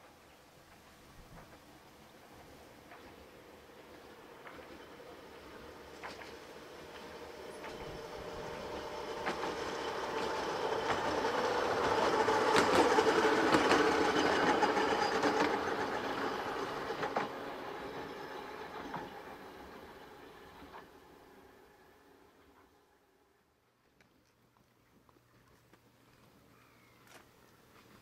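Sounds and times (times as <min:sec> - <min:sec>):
electric tram humming: 0:00.9 - 0:23.3
wheels clicking on rails: 0:02.7 - 0:21.2.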